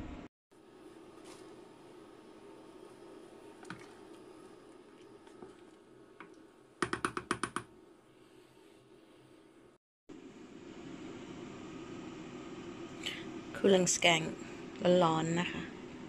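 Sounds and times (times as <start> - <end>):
steady low hum: 7.7 - 16.0.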